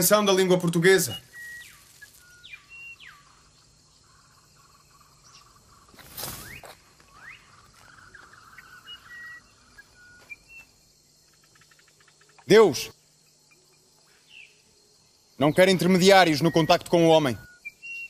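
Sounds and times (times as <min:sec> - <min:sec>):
bird calls: 0:00.0 - 0:18.0
high bird chirps: 0:00.7 - 0:12.5, 0:15.4 - 0:18.0.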